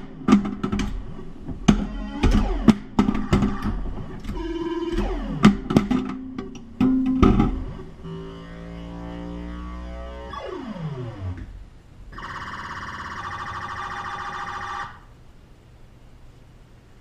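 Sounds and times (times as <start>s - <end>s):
warbling siren-like buzz: 1.7s - 5.7s, 7.5s - 15.1s
pinball machine electronic tones: 1.7s - 11.5s, 12.1s - 15.0s.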